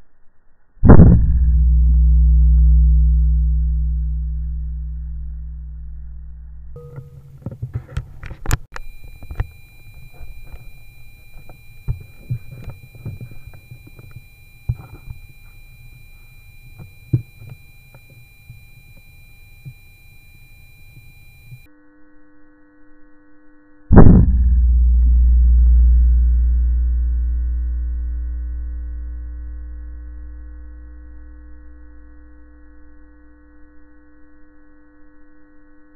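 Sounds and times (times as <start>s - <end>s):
loud boom into deep drone: 0.8s - 6.8s, 23.9s - 31.4s
faint steady high tones: 3.1s - 21.7s.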